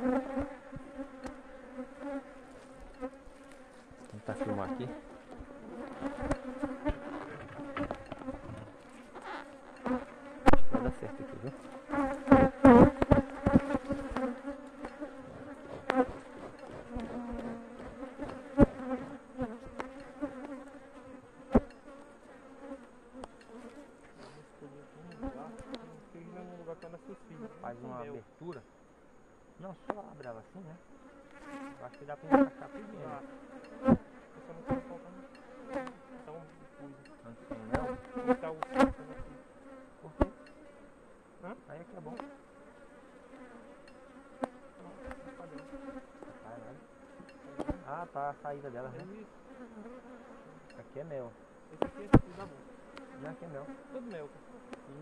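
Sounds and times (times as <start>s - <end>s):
bees buzzing: 0.0s - 55.0s
hive tool knocks and scrapes: 2.0s - 24.4s, 25.1s - 26.0s, 31.3s - 39.4s, 43.4s - 46.4s, 47.1s - 47.9s, 51.8s - 53.8s.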